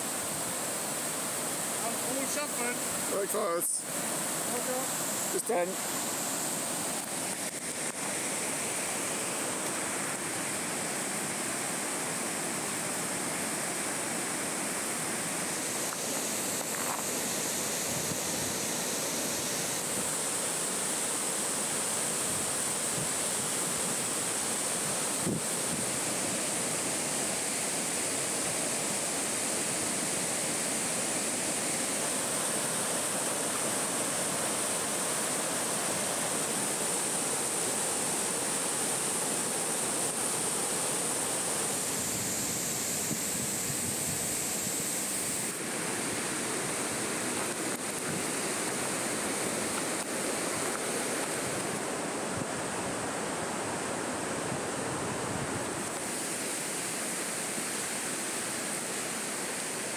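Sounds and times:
water rushing over rocks: 0:00.0 - 0:59.9.

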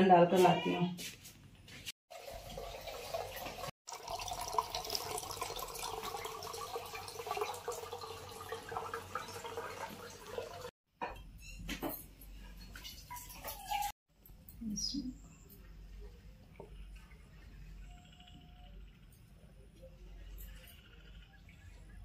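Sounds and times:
water pouring into steel tumbler: 0:02.1 - 0:10.7.

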